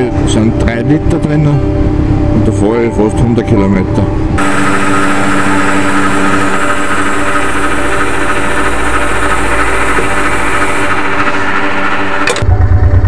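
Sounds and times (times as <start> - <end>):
motorcycle engine running: 4.4 - 13.0.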